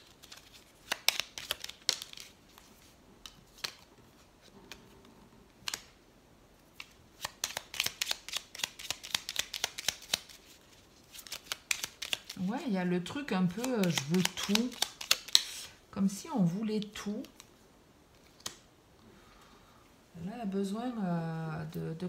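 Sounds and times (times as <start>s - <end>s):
cards shuffling snaps: 0.0s - 3.9s, 5.6s - 6.0s, 6.8s - 12.4s, 13.5s - 15.8s, 18.1s - 18.7s.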